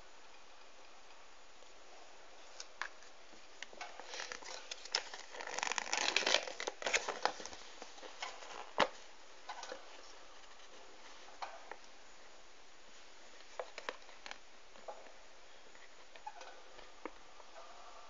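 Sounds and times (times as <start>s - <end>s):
paper rustling and crinkling: 2.4s - 11.4s.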